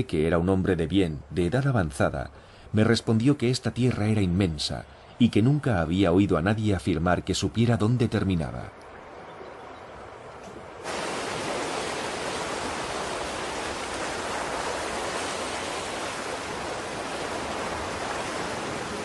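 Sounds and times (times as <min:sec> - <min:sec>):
waves rushing onto beach: 0:10.7 - 0:19.0.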